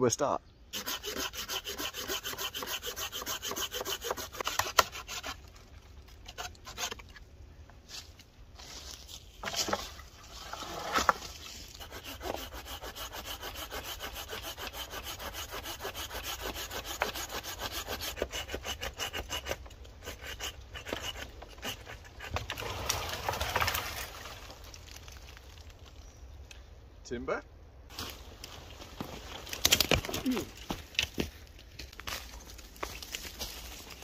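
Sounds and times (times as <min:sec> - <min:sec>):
hand saw cutting wood: 0:00.8 - 0:05.4, 0:06.3 - 0:07.0, 0:10.6 - 0:22.6.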